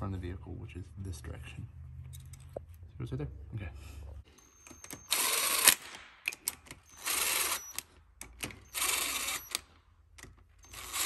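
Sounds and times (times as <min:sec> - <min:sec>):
power driver whining: 0:04.4 - 0:11.0.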